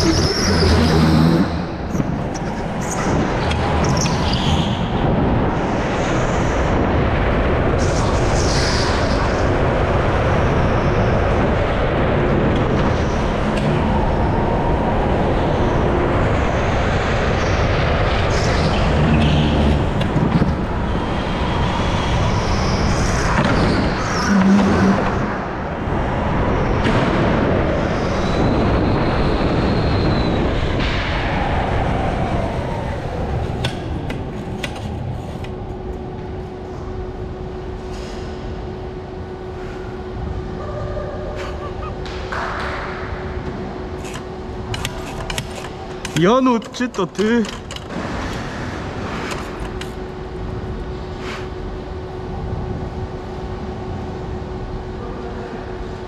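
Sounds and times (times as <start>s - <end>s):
high tyre squeal: 0.0s - 3.1s, 23.6s - 25.4s
go-kart driving at speed: 0.0s - 35.5s.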